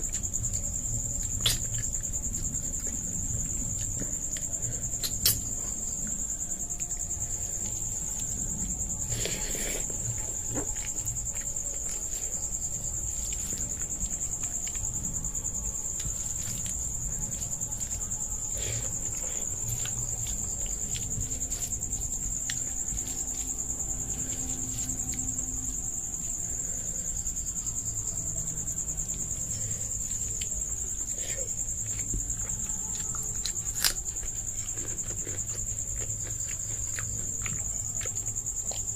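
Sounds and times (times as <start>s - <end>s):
chewing: 0.0s - 25.5s, 29.1s - 38.9s
insects chirring: 0.0s - 38.9s.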